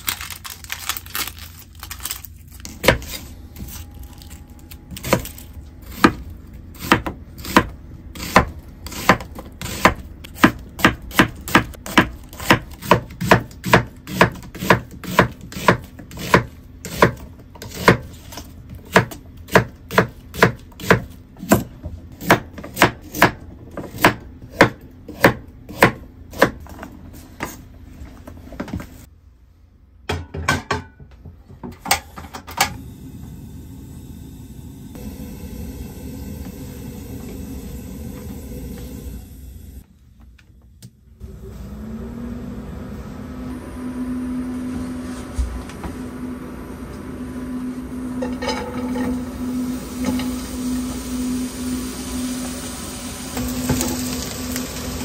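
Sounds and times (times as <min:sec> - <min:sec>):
knife chopping onion on board: 0:05.9 - 0:26.7.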